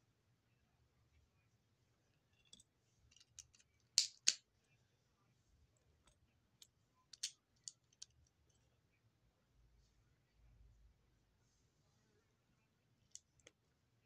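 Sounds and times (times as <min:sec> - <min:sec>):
plastic clicks of lego pieces: 0:02.4 - 0:04.4, 0:06.6 - 0:08.3.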